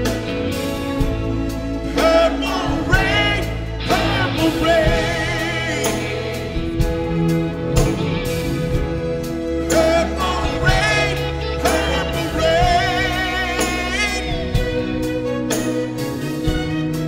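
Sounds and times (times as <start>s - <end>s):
live band accompaniment: 0.0s - 17.0s
man singing into a microphone: 1.9s - 6.8s, 9.6s - 14.9s.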